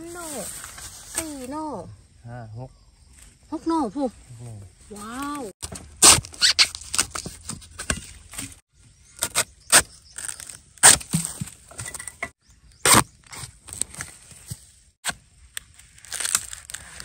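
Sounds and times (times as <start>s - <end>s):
spade chopping into roots and soil: 9.2s - 15.2s.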